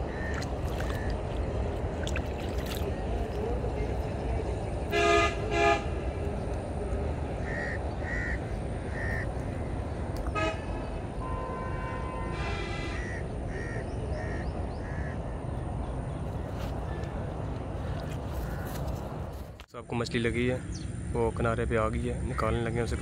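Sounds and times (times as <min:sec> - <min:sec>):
harsh bird calls: 0:00.0 - 0:01.6, 0:07.3 - 0:11.4, 0:12.9 - 0:15.6
low outdoor rumble: 0:00.0 - 0:23.0.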